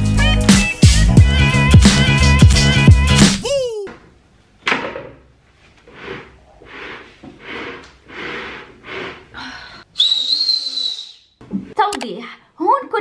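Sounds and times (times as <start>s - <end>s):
woman breathing hard: 8.1s - 9.9s.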